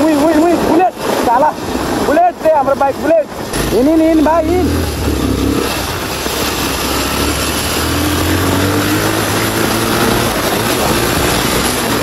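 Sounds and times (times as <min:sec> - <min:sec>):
wind rushing over microphone: 0:00.0 - 0:12.0
motorcycle engine running: 0:03.4 - 0:12.0.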